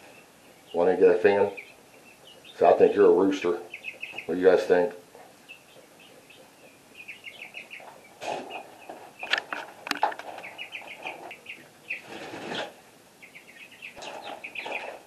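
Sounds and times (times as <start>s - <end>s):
chicks peeping: 0.0s - 15.0s
rustling: 7.7s - 12.8s.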